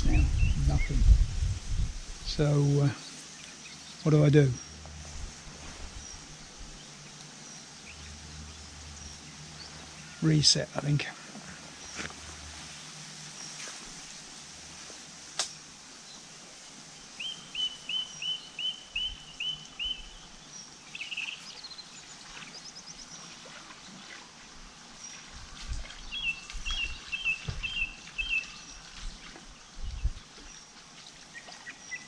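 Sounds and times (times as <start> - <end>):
songbird chirping: 0.0 - 1.2, 2.2 - 32.0.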